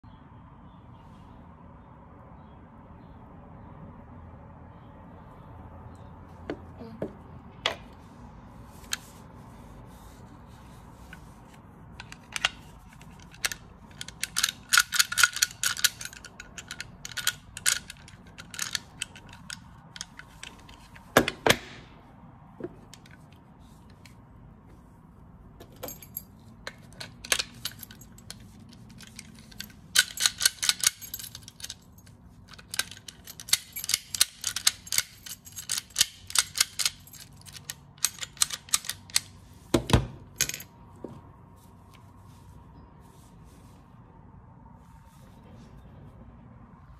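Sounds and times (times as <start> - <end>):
lock mechanism clicking: 12.0 - 21.8, 25.6 - 40.7.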